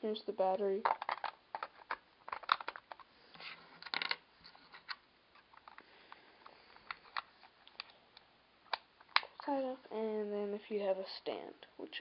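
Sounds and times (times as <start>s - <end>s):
plastic handling clicks and rubbing: 0.8s - 9.5s.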